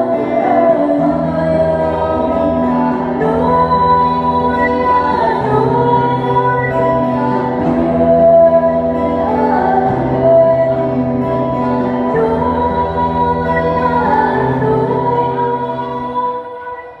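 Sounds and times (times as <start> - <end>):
instrumental accompaniment with bass: 0.0 - 16.4
women singing: 0.0 - 17.0.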